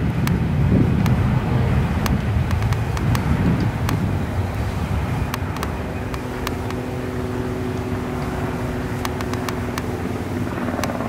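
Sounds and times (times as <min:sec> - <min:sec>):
jet engine roar: 0:00.0 - 0:11.0
sharp clicks: 0:02.0 - 0:04.6, 0:05.3 - 0:06.9, 0:09.0 - 0:10.0, 0:10.6 - 0:11.0.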